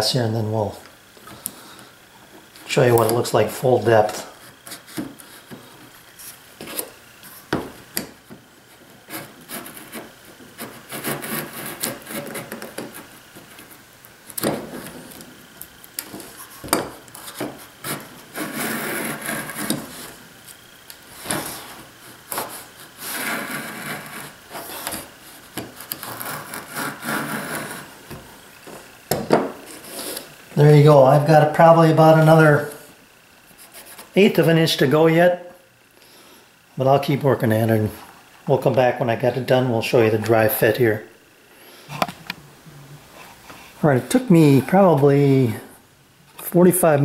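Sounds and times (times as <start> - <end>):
plane blade scraping wood: 2.4 - 7.7, 8.7 - 15.3, 16.0 - 20.3, 21.1 - 29.0, 29.6 - 31.3.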